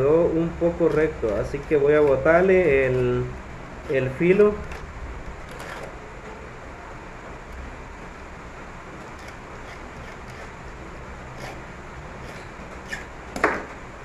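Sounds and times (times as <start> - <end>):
hand file rasping on metal: 9.2 - 10.6, 11.3 - 11.6, 12.2 - 13.1.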